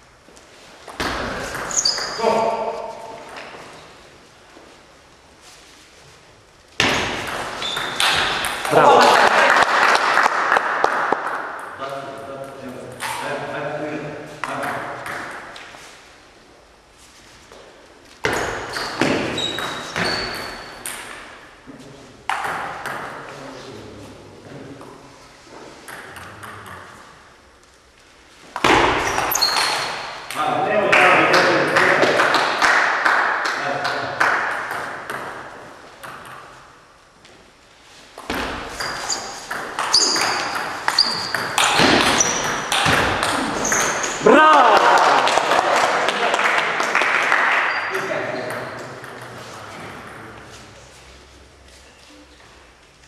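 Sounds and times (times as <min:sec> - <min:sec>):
table tennis ball hits echoing: 0:00.9 - 0:03.6, 0:06.8 - 0:09.4, 0:18.2 - 0:21.5, 0:22.3 - 0:23.3, 0:25.8 - 0:26.9, 0:28.6 - 0:30.5, 0:31.1 - 0:36.6, 0:38.2 - 0:44.4.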